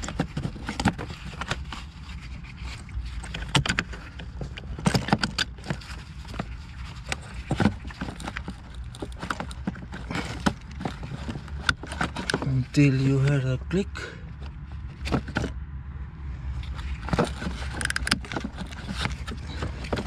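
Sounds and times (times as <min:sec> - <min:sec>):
steady low rumble: 0:12.5 - 0:20.0.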